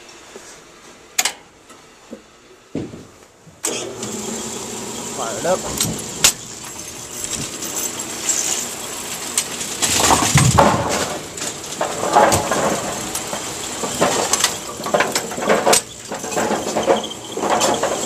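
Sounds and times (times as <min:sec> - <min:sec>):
bowling pins clattering: 0:09.4 - 0:18.0.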